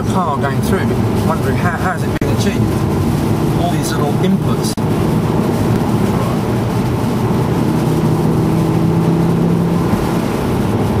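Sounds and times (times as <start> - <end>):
car engine running: 0.0 - 11.0
tyres hissing on wet road: 0.0 - 11.0.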